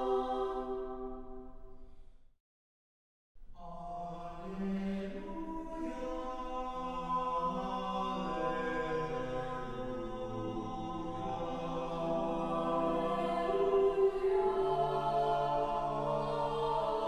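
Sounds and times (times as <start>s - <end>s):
a cappella choir singing: 0.0s - 1.5s, 3.6s - 17.0s.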